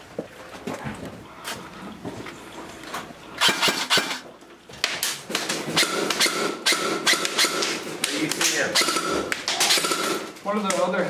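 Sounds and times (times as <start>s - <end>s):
airsoft rifle firing bursts: 3.4s - 4.2s, 5.7s - 10.4s.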